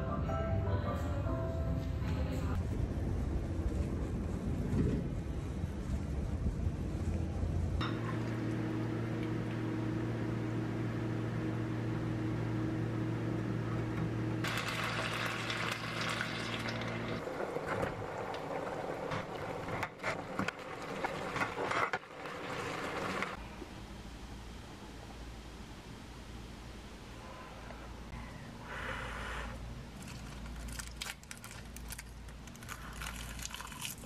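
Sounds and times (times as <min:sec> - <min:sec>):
steady low hum: 0:00.9 - 0:34.0
water hissing in hot pan: 0:14.4 - 0:17.2
rice sizzling and crackling: 0:14.4 - 0:23.4.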